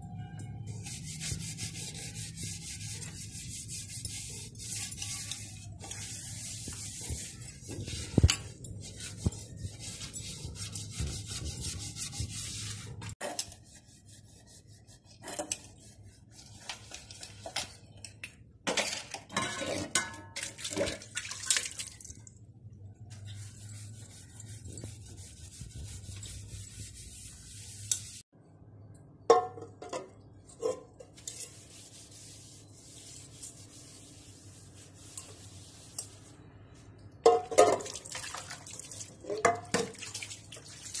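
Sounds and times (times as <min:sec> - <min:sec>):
scouring pad scrubbing metal: 0:00.7 - 0:17.0, 0:23.3 - 0:28.3
metal utensils clanking: 0:16.7 - 0:21.0.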